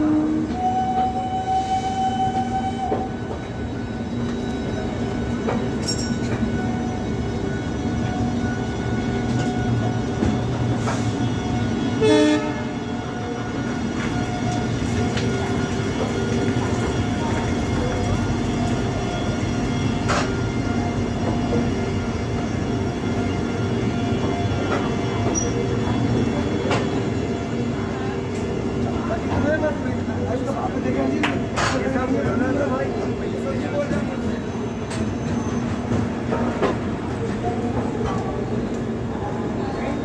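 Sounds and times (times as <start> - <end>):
train horn blast: 0.0 - 3.1, 12.0 - 13.0
train wheels rumbling on rails: 0.0 - 40.0.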